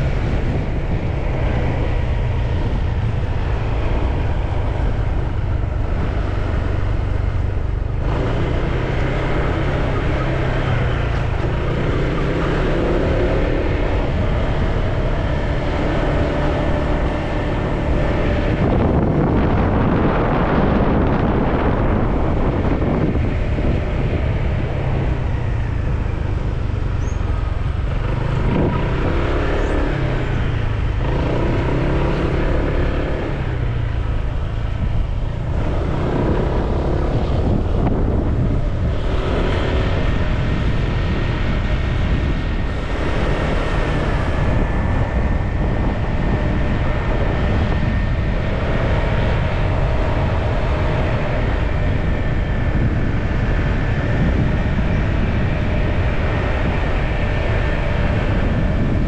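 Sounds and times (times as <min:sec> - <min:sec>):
scooter engine running: 0:00.0 - 0:59.0
wind noise: 0:00.0 - 0:59.0.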